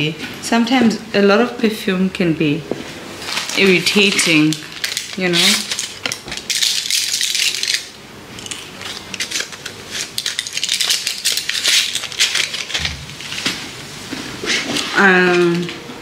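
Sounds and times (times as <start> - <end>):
blister pack crinkling: 3.2 - 13.5.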